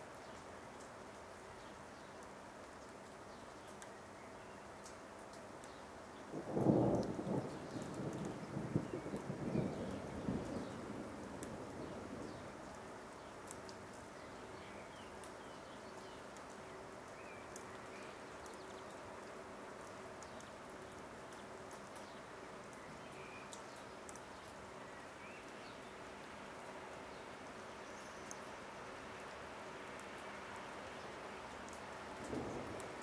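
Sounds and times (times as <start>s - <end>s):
light rain hiss: 0.0s - 33.0s
faint drips ticking: 0.1s - 33.0s
thunder rumble: 6.4s - 12.4s, 32.2s - 33.0s.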